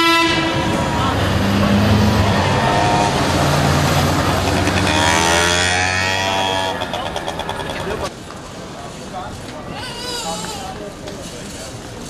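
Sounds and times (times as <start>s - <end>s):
vehicle engines running: 0.4s - 9.7s
motor scooter passing: 0.6s - 8.1s.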